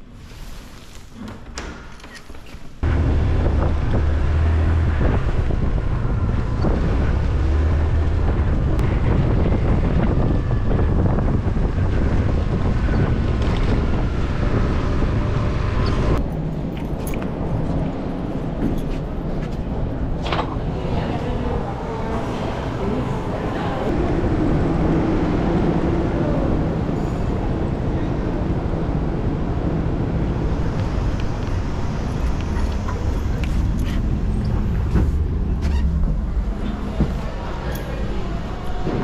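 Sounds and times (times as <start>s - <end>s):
street noise: 2.0s - 39.0s
wind rushing over microphone: 2.8s - 16.7s.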